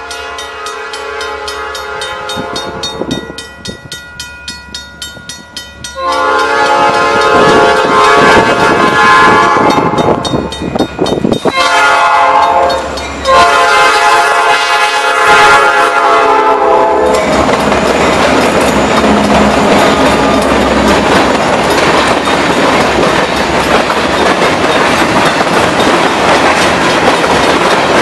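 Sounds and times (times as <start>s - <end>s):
locomotive air horn blasts: 0.0s - 3.0s, 6.0s - 10.3s, 11.5s - 17.3s
locomotive engines rumbling: 0.0s - 28.0s
train wheels clattering: 0.1s - 14.8s, 16.8s - 28.0s.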